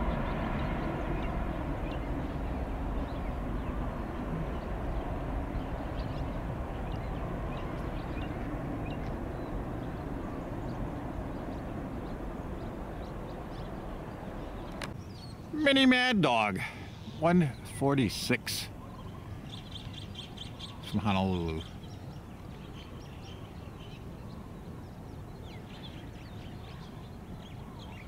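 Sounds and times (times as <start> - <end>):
jet engines rumbling: 0.0 - 27.9
faint bird chirps: 18.7 - 28.0.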